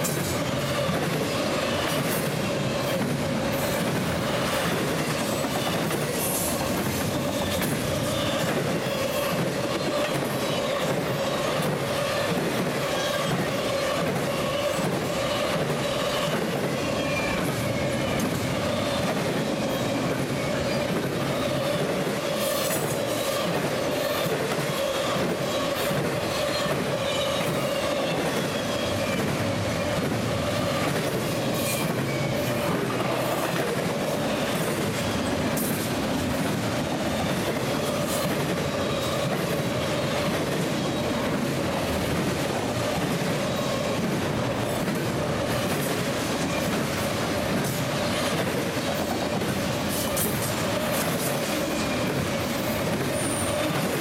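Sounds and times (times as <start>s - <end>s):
train wheels pounding over joints: 0.0s - 54.0s
wheel squeal: 53.1s - 53.8s.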